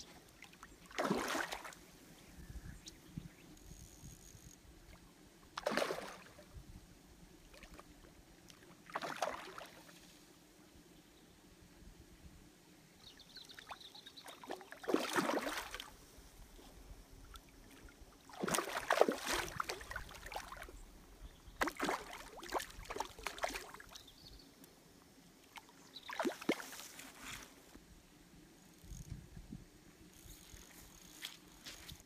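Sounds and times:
fish splashing in water: 0.9 - 1.8, 5.6 - 6.4, 8.8 - 9.8, 14.3 - 15.9, 18.3 - 20.7, 21.6 - 24.0.

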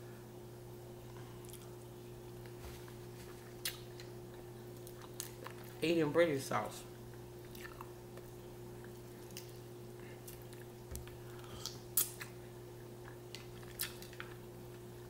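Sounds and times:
faint steady hum: 0.0 - 15.0
chewing mouth clicks and smacks: 1.4 - 2.6, 3.4 - 5.8, 7.4 - 9.6, 10.2 - 12.4, 13.0 - 14.8.

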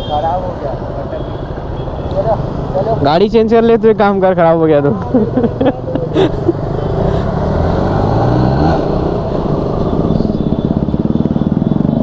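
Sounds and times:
motorcycle engine revving: 6.5 - 12.0.

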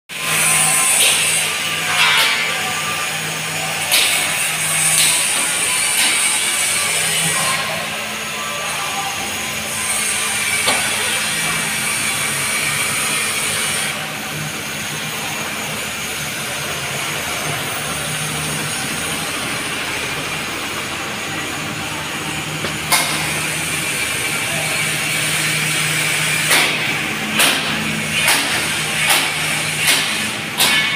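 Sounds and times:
bus engine idling: 7.7 - 30.8.

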